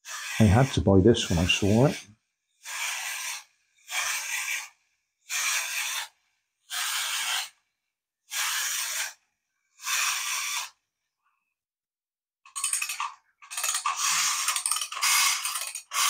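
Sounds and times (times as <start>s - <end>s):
clockwork toy key winding: 12.5s - 16.0s.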